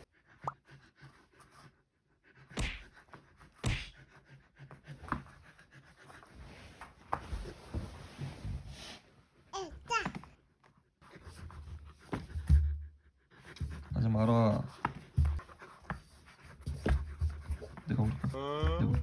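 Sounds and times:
dog panting: 0.0s - 6.9s, 11.1s - 18.3s
rustles of movement: 6.1s - 9.4s.

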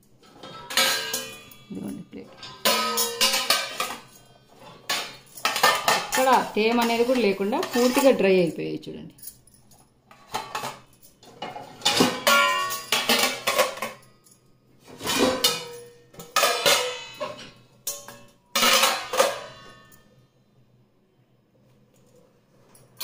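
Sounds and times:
steel plates clanking together: 0.2s - 8.3s, 10.1s - 14.1s, 14.9s - 20.0s.

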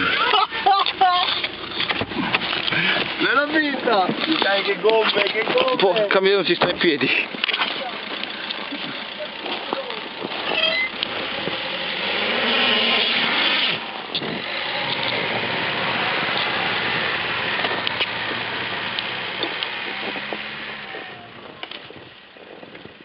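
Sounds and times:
tyres churning through snow: 0.0s - 23.0s
car engine revving hard: 10.2s - 21.6s.

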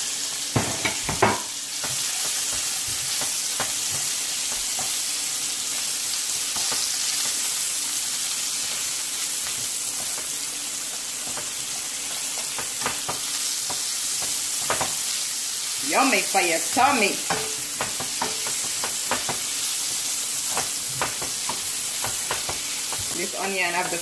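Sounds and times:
food sizzling in frying pan: 0.0s - 24.0s
spatula scraping and tapping: 0.6s - 5.1s, 6.4s - 7.5s, 8.7s - 15.1s, 17.2s - 23.6s.

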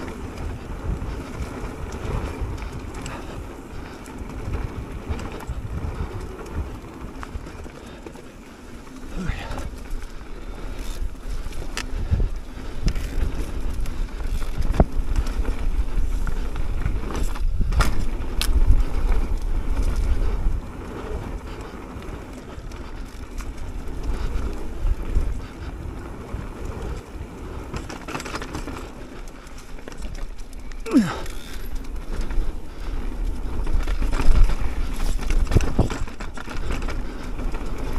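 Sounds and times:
wind noise on microphone: 0.0s - 8.0s, 8.6s - 37.9s
bike tyres rolling on dirt: 0.0s - 37.9s
bike knocks and rattles: 10.8s - 20.2s, 33.6s - 37.9s.

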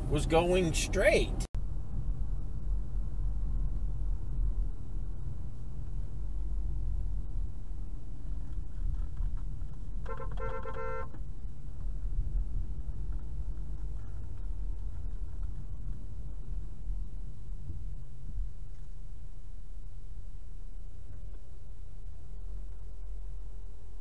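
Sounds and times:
car road and engine rumble: 0.0s - 24.0s
car horn: 10.0s - 11.2s.

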